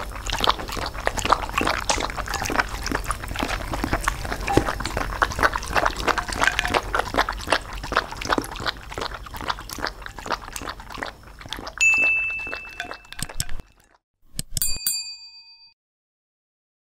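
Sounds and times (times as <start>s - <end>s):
dogs licking and chewing food: 0.0s - 14.0s
bell-like ding: 11.8s - 13.2s, 14.6s - 15.8s
click and chime: 11.8s - 13.6s, 14.4s - 15.8s.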